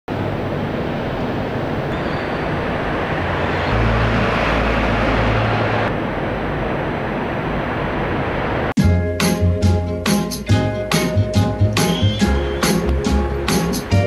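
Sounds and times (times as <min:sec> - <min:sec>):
passing vehicle rumble: 0:00.1 - 0:08.8
traffic rushing: 0:00.1 - 0:08.8, 0:11.8 - 0:14.0.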